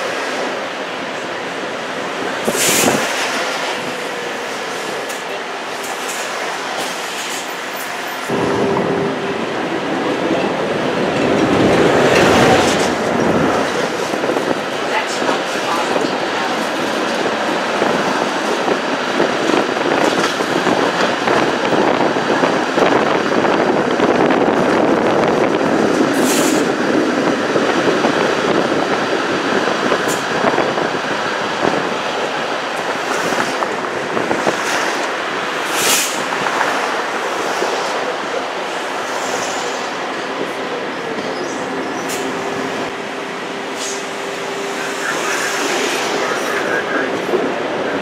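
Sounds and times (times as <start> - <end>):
steel wheels rumbling on rail: 0.0 - 48.0.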